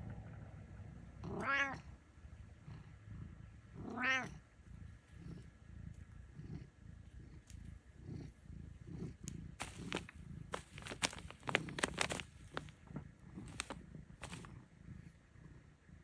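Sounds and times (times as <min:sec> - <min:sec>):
cat meowing: 0:01.2 - 0:01.9, 0:03.8 - 0:04.4.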